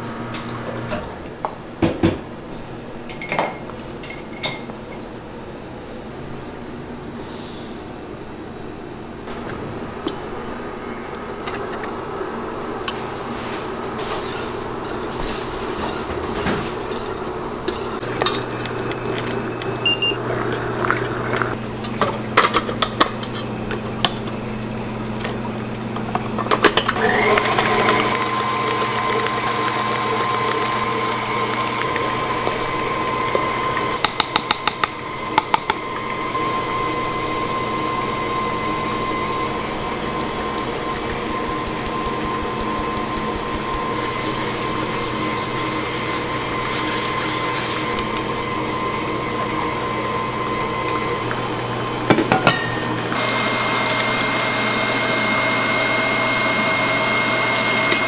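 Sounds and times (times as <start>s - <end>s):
stand mixer whining: 12.4s - 22.4s, 23.2s - 58.0s.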